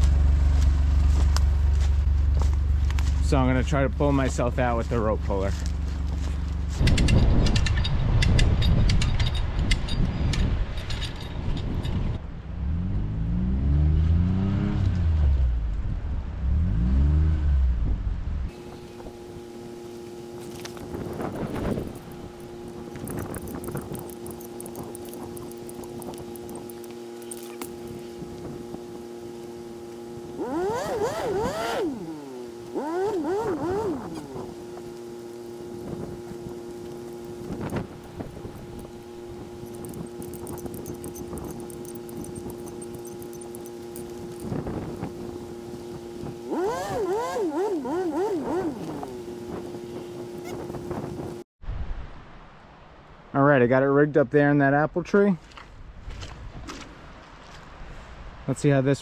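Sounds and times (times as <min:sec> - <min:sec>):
utility vehicle engine revving: 0:12.6 - 0:51.4
rapid clattering clicks: 0:21.0 - 0:27.5, 0:39.6 - 0:44.6.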